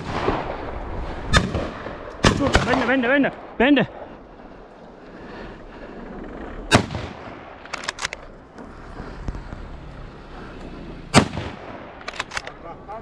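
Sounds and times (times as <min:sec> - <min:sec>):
loud gunshots with echo: 0:00.0 - 0:00.7, 0:01.3 - 0:03.0, 0:11.1 - 0:12.1.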